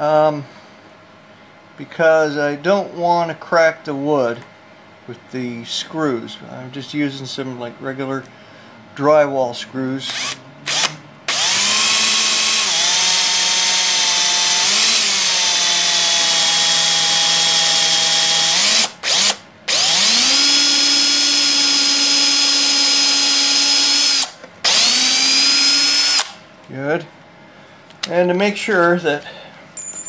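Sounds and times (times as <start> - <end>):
cordless drill whining: 10.1 - 26.4.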